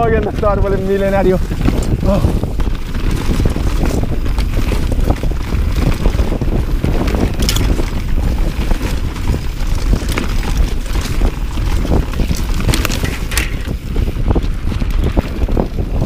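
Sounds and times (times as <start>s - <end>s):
bike clicks and rattles: 0.0s - 16.0s
bike tyres on dirt trail: 0.0s - 16.0s
wind buffeting microphone: 0.0s - 16.0s.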